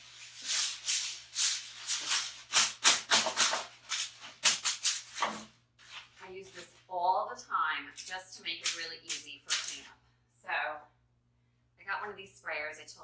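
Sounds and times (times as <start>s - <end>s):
aluminum foil crinkling: 0.0s - 6.7s, 8.0s - 9.9s.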